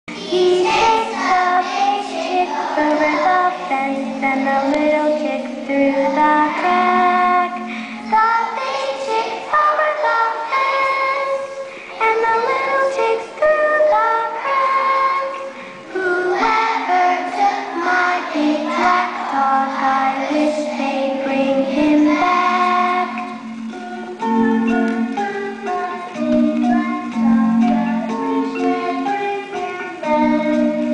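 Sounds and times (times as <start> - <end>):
young children singing: 0.1 - 30.9.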